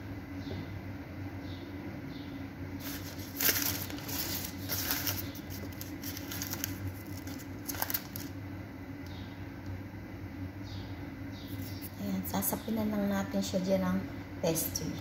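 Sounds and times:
pastry sheets rustling and crinkling: 2.8 - 8.4.

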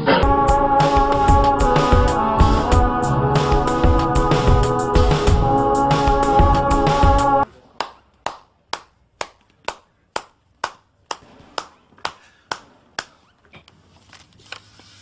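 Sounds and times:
slow handclapping: 7.8 - 13.2.

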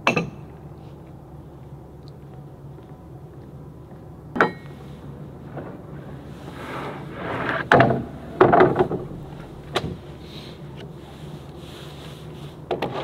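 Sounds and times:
wood scraping slide: 5.0 - 13.0.

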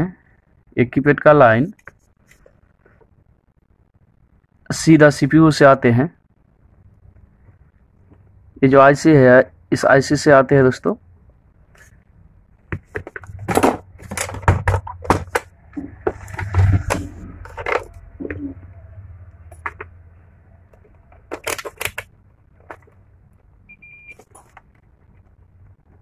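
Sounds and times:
handling rumble: 12.5 - 23.6
multimeter beep: 23.7 - 24.2.

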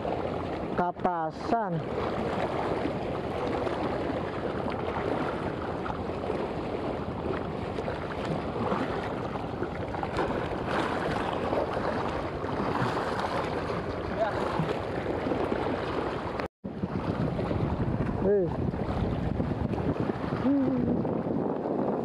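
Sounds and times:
sea water lapping around rocks: 0.0 - 22.0.

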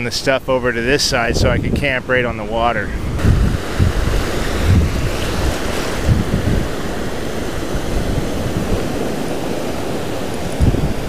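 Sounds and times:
wind buffeting microphone: 0.0 - 11.0
surf breaking on sand: 2.7 - 11.0.

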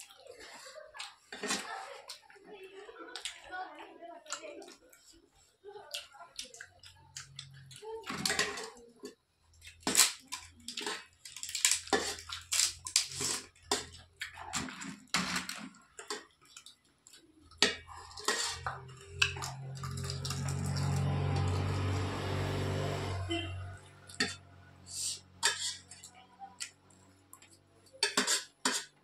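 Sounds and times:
crisp food crunching: 9.5 - 22.3
spoons scraping metal plates: 11.7 - 14.0, 17.6 - 22.0, 22.9 - 26.1, 28.0 - 29.0.

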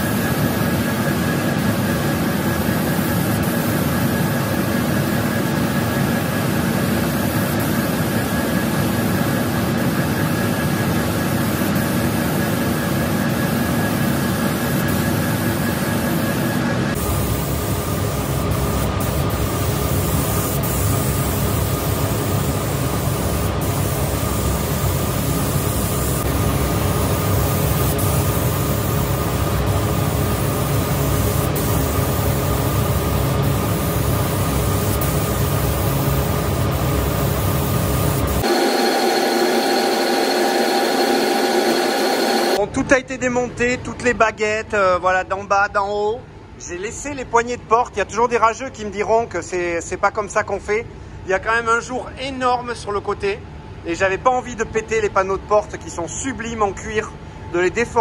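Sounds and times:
ventilation fan rushing and humming: 0.0 - 58.0
spray gun hissing: 16.9 - 42.6.

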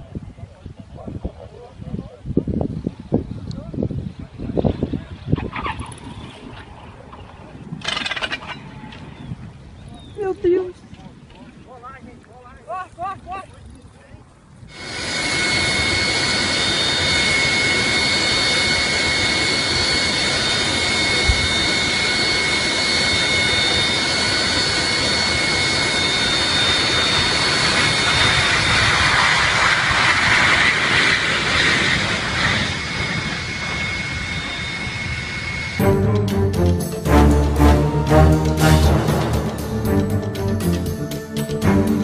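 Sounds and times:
jet engines whining: 14.7 - 42.0
rushing noise: 24.1 - 42.0.

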